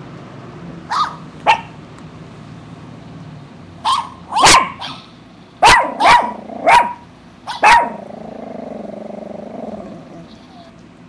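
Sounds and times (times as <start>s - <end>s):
dog barking: 0.9s - 1.8s, 3.8s - 8.1s.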